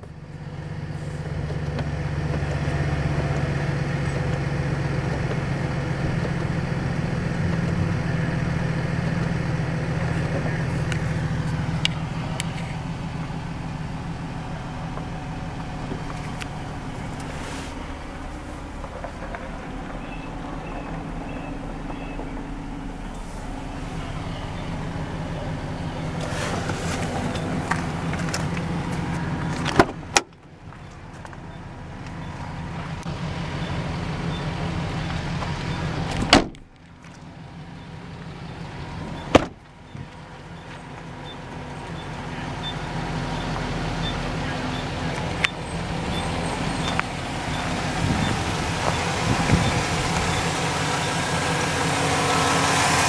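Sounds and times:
pickup truck idling: 0.0 - 53.0
car doors thumping shut: 29.6 - 30.3, 36.1 - 36.7, 39.3 - 39.6.

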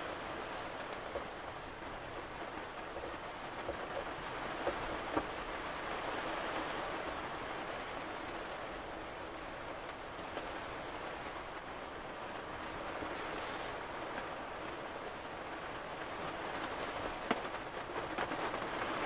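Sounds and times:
raindrops ticking: 0.0 - 13.2
rain on a camper roof: 0.0 - 19.0.

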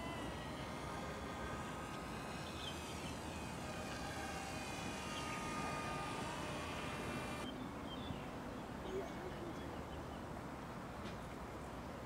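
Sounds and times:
electric motor propeller whine: 0.0 - 7.5.

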